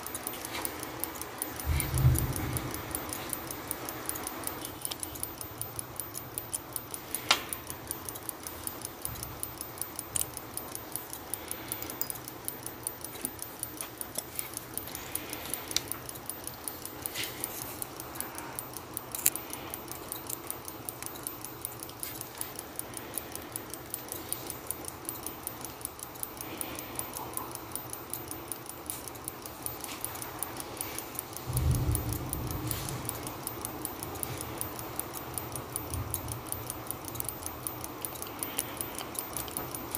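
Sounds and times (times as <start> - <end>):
clothes dryer humming: 0.0 - 4.8
fast ticking: 0.0 - 39.9
metal tweezers clicking on watch parts: 0.0 - 39.9.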